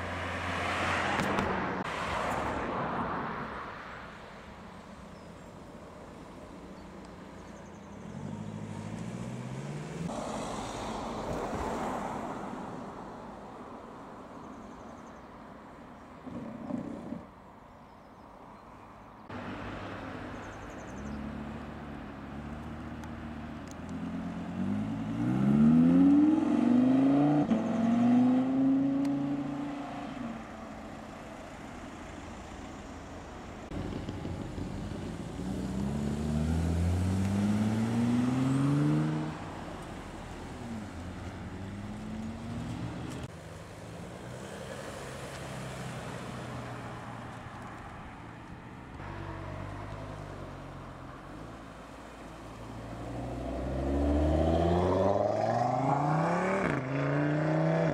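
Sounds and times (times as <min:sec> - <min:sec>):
sports car accelerating: 0:08.0 - 0:12.6, 0:19.3 - 0:32.8, 0:33.6 - 0:57.9
low engine rumble: 0:30.5 - 0:37.2.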